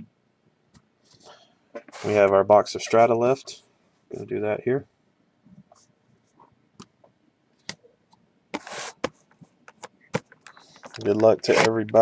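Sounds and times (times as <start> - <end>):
scratchy rustle: 1.9 - 2.3, 8.6 - 9.1.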